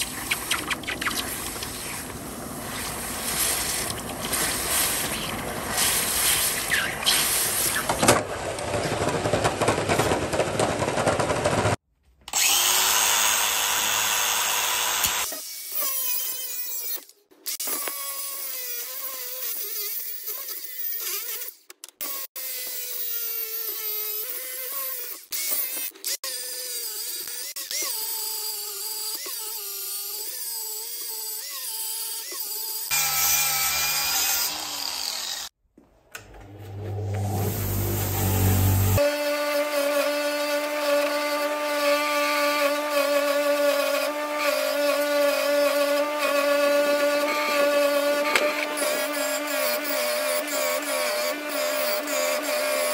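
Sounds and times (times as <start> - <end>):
angle grinder on metal: 0.0 - 8.0, 12.3 - 17.0, 17.6 - 35.6, 36.9 - 52.9.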